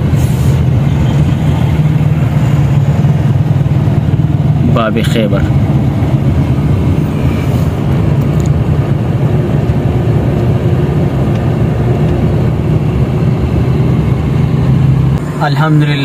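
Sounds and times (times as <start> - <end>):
car engine hum: 0.0 - 16.0
road noise: 0.0 - 16.0.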